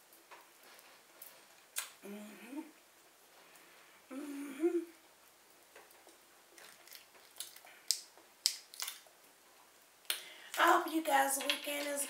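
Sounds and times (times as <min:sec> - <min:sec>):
woman humming while eating: 0:02.0 - 0:02.8, 0:04.1 - 0:05.0
shellfish shell cracking: 0:06.5 - 0:09.1.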